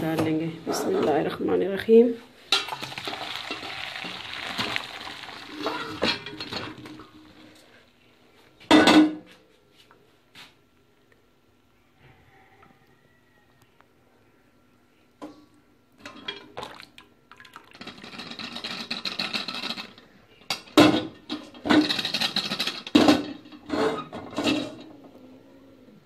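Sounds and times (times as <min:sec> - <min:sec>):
water pouring: 0:02.6 - 0:07.5, 0:16.4 - 0:19.0
water splashing and draining: 0:02.7 - 0:07.4, 0:16.5 - 0:18.2.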